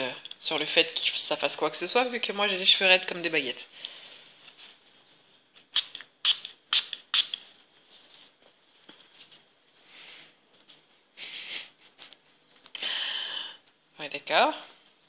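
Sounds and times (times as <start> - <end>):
spray bottle spritzing: 5.7 - 7.4.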